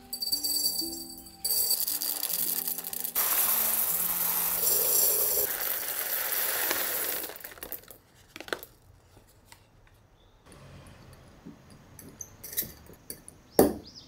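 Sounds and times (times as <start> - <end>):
coffee beans pouring into glass jar: 1.4 - 8.0.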